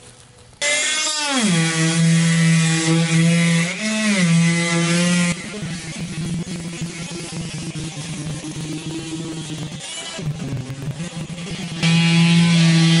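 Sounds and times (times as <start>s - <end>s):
oscillating multi-tool running: 3.0s - 13.0s.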